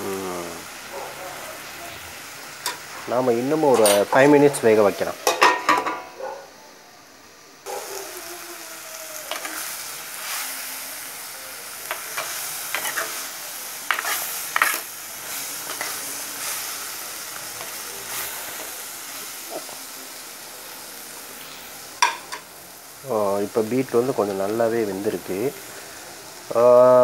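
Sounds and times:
curry sizzling in a pot: 0.0 - 27.0
spoon scraping and clinking pot: 3.7 - 4.2.

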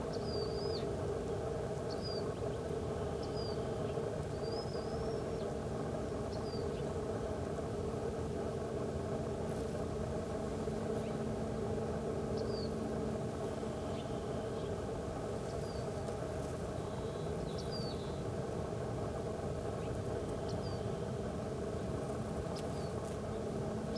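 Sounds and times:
faint steady hum: 0.0 - 23.9
low machine drone: 0.0 - 23.9
bird chirps: 12.4 - 12.8.

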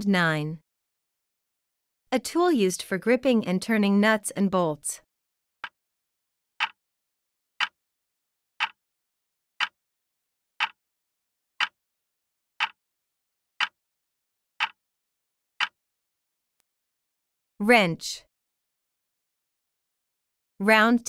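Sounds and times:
clock-like timer ticks: 6.6 - 6.8, 8.6 - 8.8, 10.6 - 10.8, 12.6 - 12.8.

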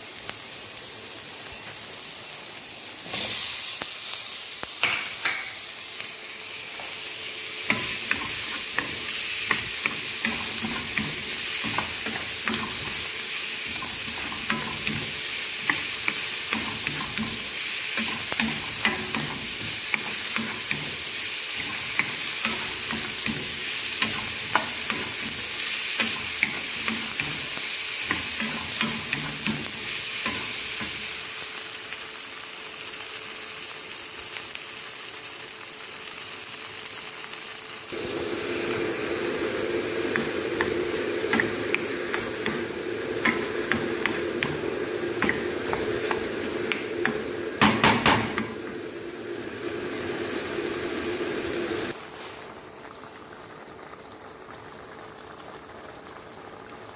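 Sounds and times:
potatoes sizzling in a wok: 0.0 - 56.9
steady hum: 38.0 - 51.9.

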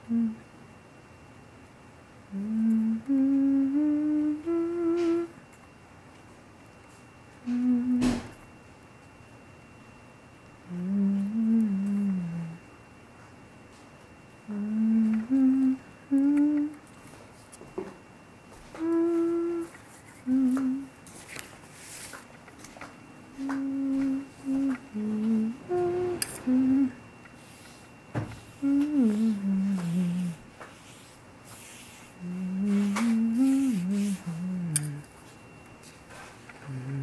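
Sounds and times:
person humming: 0.0 - 0.5, 2.3 - 5.4, 7.4 - 8.4, 10.6 - 12.7, 14.4 - 16.8, 18.6 - 21.0, 23.3 - 35.2, 36.5 - 37.0
wet brush swishing on paper: 27.4 - 34.3.

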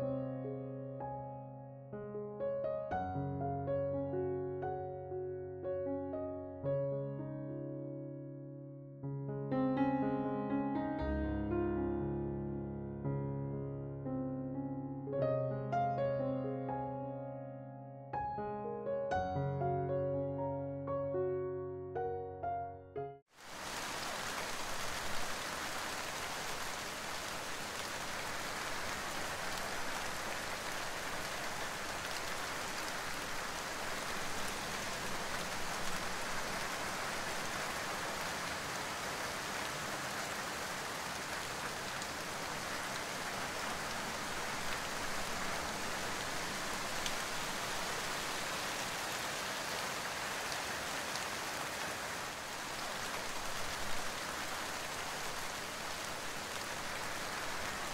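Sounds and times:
rain falling on leaves: 23.3 - 57.9.

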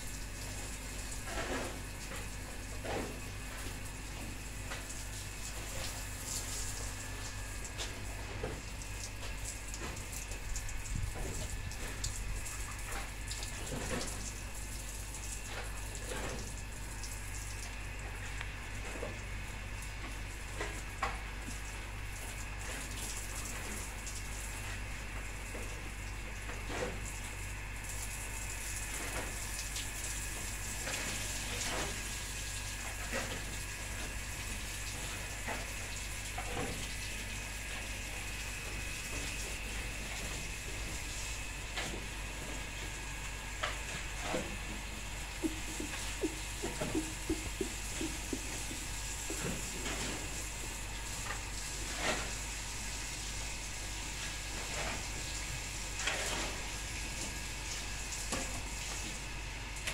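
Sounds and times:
hose spraying water on brick: 0.0 - 18.3, 19.1 - 25.9, 26.5 - 59.9
low hum: 43.6 - 51.2
shovel knocking on concrete: 45.4 - 48.9.

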